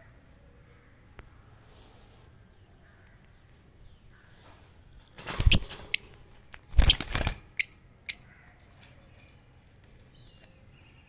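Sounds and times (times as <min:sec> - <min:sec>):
birds scuffling and flapping: 0:04.4 - 0:07.7, 0:08.6 - 0:10.6.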